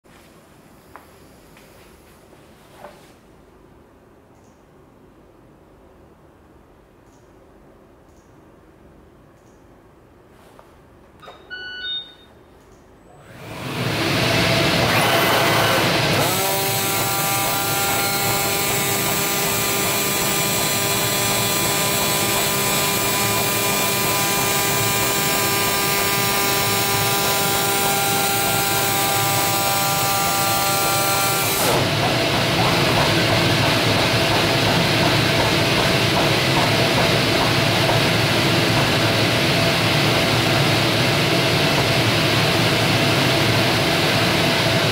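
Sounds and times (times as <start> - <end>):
steady pitched machine whine: 13.3 - 44.9.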